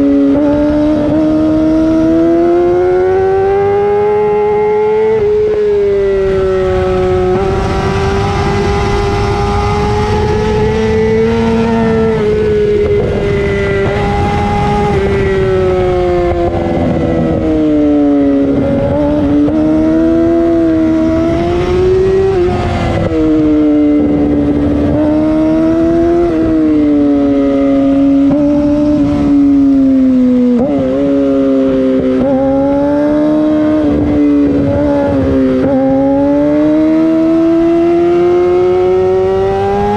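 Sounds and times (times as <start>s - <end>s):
motorcycle engine revving high: 0.0s - 39.9s
wind over microphone: 0.0s - 39.9s.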